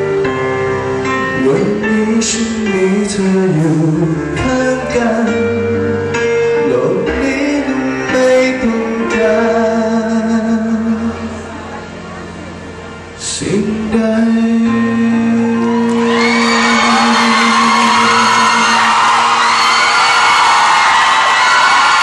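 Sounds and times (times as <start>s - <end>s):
band with keyboard and drums: 0.0s - 22.0s
man singing into a microphone: 1.2s - 11.4s, 13.2s - 19.2s.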